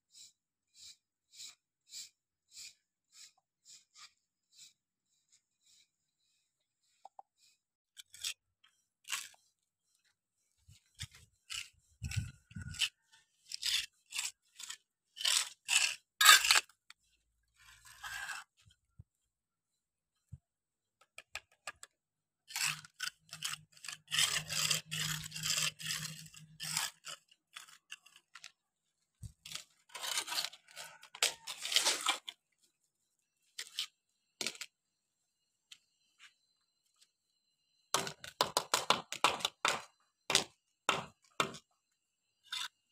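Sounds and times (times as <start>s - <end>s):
trowel scraping cement: 7.0s - 18.8s, 21.7s - 32.8s, 33.4s - 34.8s, 42.3s - 42.9s
trowel scraping metal pan: 11.0s - 16.7s, 17.6s - 18.6s, 22.5s - 28.5s, 29.4s - 32.3s.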